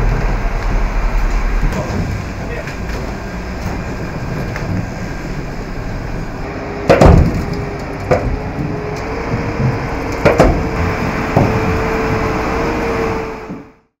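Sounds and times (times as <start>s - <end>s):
steady rumble: 0.0s - 13.8s
held whine: 0.0s - 13.9s
wheels knocking on metal ramp: 6.9s - 12.3s.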